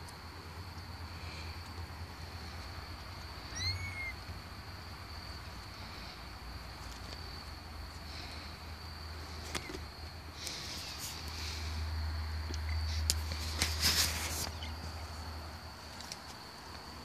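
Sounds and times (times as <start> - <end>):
kitten mewing: 3.4 - 4.2.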